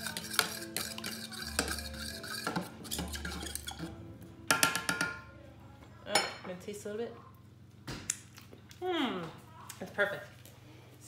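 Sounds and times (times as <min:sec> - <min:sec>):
utensil scraping and tapping a dish: 0:00.0 - 0:03.9.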